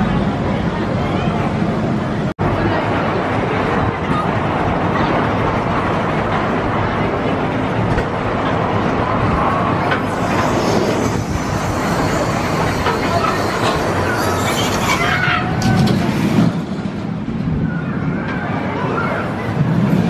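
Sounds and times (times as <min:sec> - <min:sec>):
roller coaster clattering rattle: 0:00.0 - 0:20.0
wheel squeals: 0:10.0 - 0:16.0.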